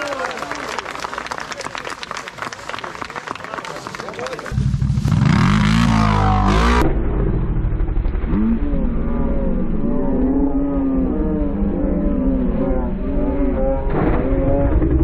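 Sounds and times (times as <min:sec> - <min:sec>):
atv engine revving: 0:04.5 - 0:15.0.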